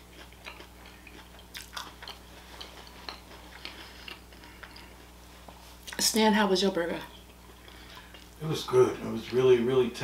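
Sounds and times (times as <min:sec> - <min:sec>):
person chewing food: 0:00.0 - 0:06.0, 0:07.1 - 0:09.5.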